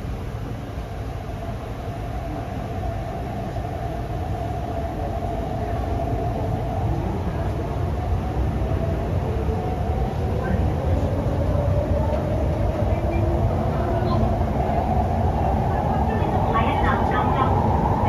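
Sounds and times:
train mid-pitched whine: 0.0 - 18.0
train running rumble: 0.0 - 18.0.

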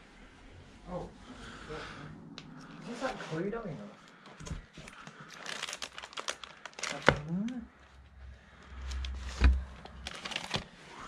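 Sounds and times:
plastic pockets crinkling: 4.9 - 7.7, 8.8 - 10.8.

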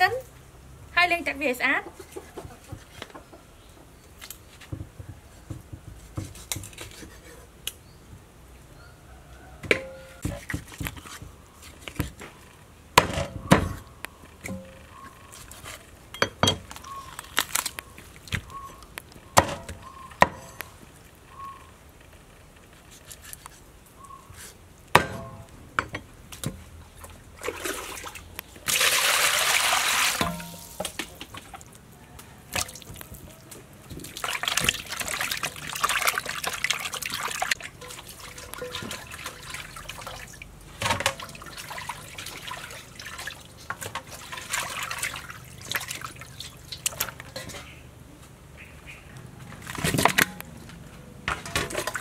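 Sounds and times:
water splashing in metal bowl: 27.0 - 31.6, 34.0 - 47.6
running water: 27.0 - 31.7, 32.5 - 47.6.

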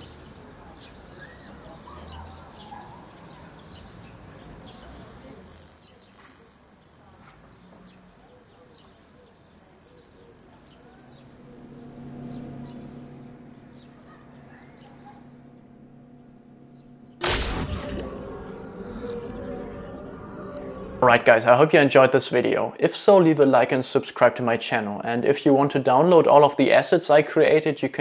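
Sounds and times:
insects chirping: 5.6 - 21.9
low steady hum: 10.3 - 22.8.

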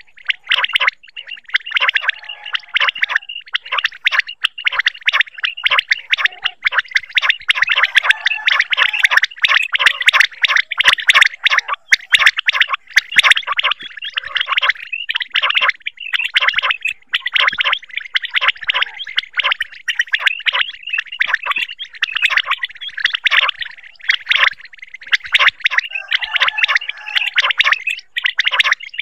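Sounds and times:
quail calling: 0.0 - 29.0.

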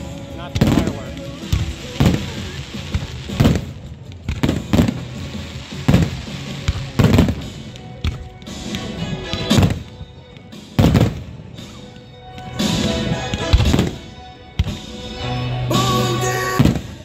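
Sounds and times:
music playing: 0.0 - 17.0
firework shells booming: 0.5 - 11.8, 12.5 - 15.0.

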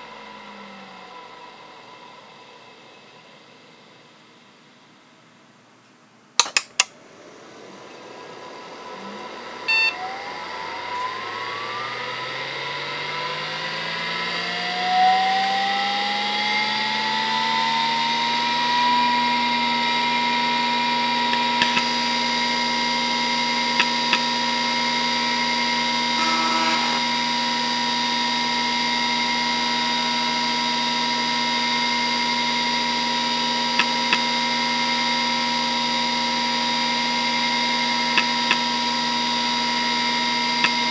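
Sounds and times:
hard drive motor whine: 0.0 - 5.2, 7.0 - 40.9
hard drive clicks: 21.3 - 22.0
short beep: 26.2 - 27.1.

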